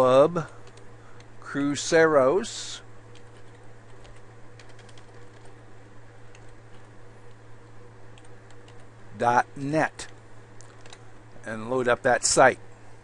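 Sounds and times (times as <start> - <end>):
steady low hum: 0.0 - 13.0
keyboard keystrokes: 3.1 - 5.6.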